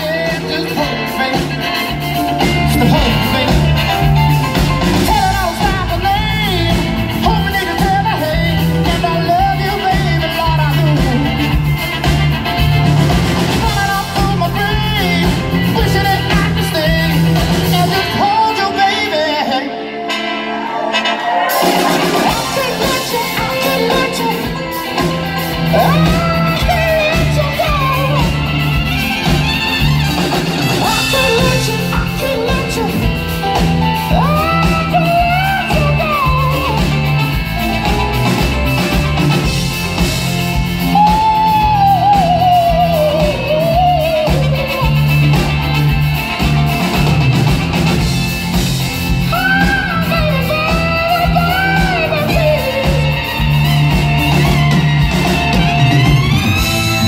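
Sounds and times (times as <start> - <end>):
live soul band playing: 0.0 - 57.0
singer wailing: 49.2 - 53.4.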